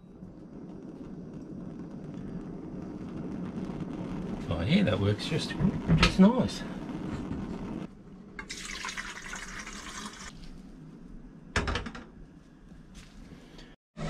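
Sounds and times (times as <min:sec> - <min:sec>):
water running into kettle: 0:08.4 - 0:10.4.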